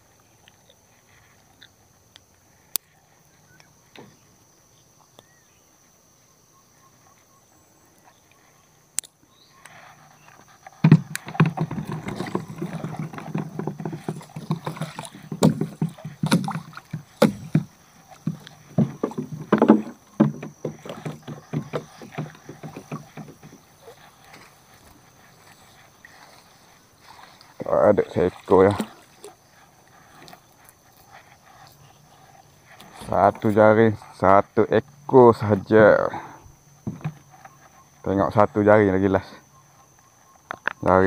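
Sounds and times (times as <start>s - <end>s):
net and fish knocking on hull: 10.8s - 25.6s, 36.8s - 37.3s
water splashing and dripping: 10.9s - 29.4s.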